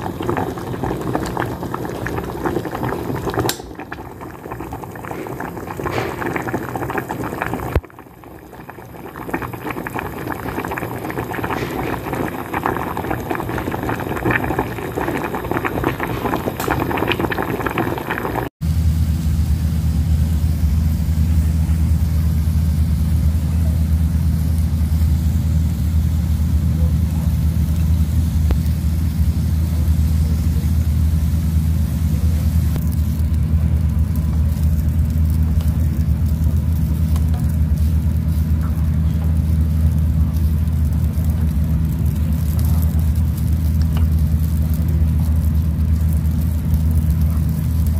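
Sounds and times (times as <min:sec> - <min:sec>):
low mechanical hum: 0:00.0 - 0:47.9
water boiling and bubbling: 0:00.0 - 0:47.9.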